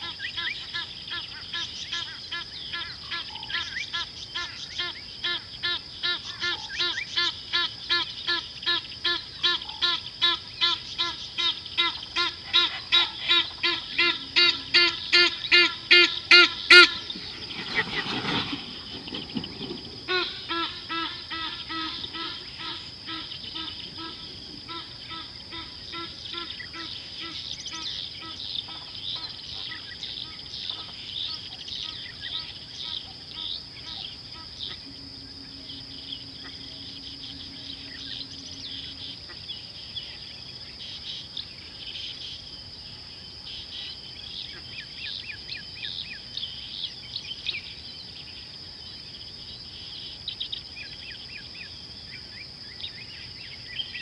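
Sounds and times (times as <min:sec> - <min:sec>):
high-pitched insect hum: 0:00.0 - 0:54.0
bird calling pitched notes: 0:34.0 - 0:39.2.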